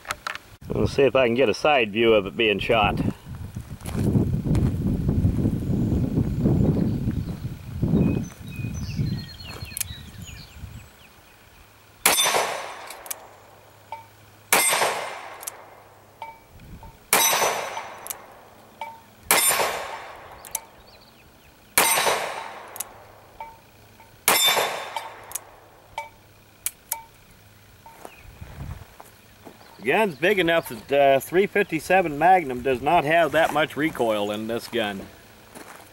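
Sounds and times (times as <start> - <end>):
revolver clicks: 9.6 - 10.0, 12.2 - 20.8, 21.8 - 28.0
revolver shots echoing: 12.0 - 15.9, 17.1 - 20.8, 21.7 - 23.6, 24.2 - 26.2.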